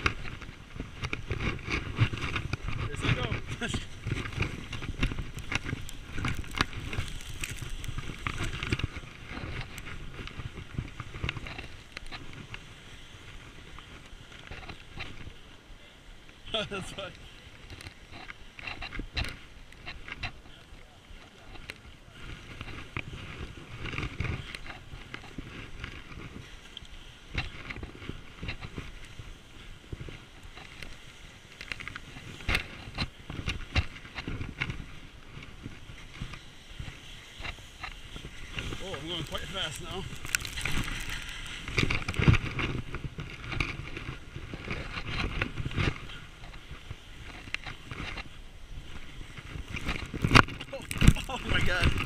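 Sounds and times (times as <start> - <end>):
clothing rubbing against camera: 0.0 - 15.4, 21.2 - 52.0
snow scraping and crunching: 0.0 - 52.0
jolting bumps: 50.2 - 52.0.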